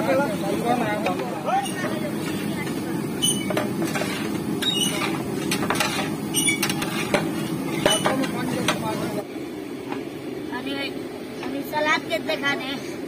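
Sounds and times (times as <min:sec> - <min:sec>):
metal ladle scraping a pot: 0:01.1 - 0:08.8.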